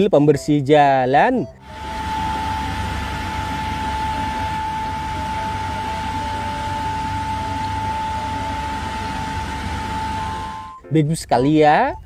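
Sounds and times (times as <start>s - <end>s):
high whine: 1.4s - 12.0s.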